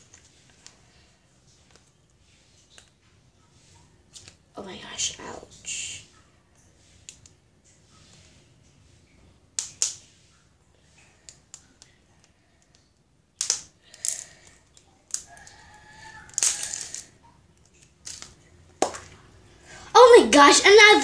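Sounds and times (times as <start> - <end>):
plastic clicks and crackles: 1.5 - 3.0, 7.0 - 7.4, 9.6 - 10.0, 11.0 - 19.2.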